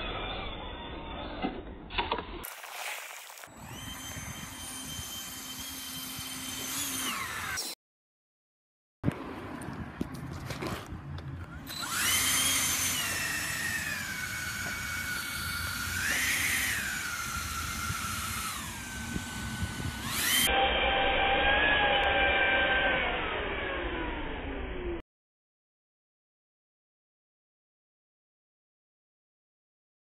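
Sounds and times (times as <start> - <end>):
high-pitched electric fan whine: 3.5 - 7.7, 11.6 - 25.0.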